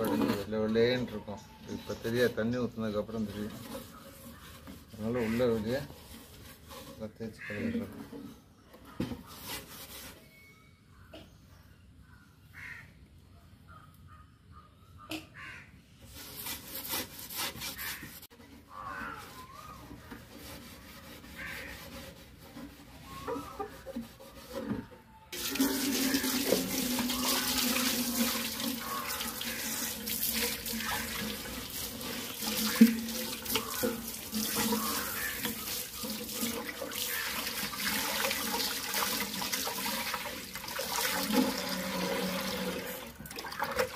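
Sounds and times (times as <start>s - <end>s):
hose water splashing into tank: 25.4s - 43.9s.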